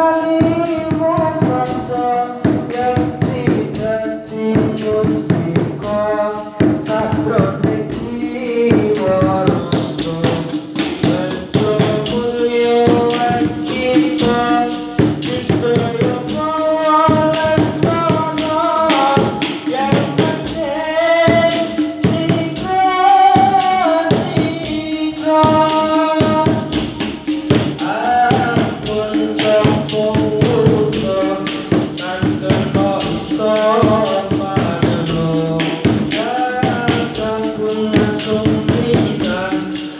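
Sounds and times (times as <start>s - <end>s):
hand drums beating rhythm: 0.0s - 39.9s
man singing devotional song: 0.0s - 39.9s.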